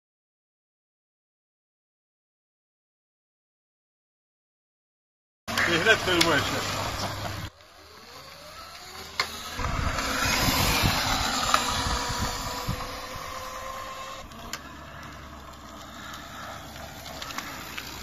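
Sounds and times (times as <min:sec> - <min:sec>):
electric scooter motor whining: 0:05.5 - 0:18.0
tyre and wind noise: 0:09.3 - 0:15.7.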